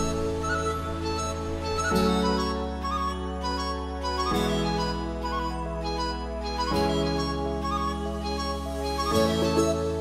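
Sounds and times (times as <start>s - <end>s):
instrumental background music: 0.0s - 10.0s.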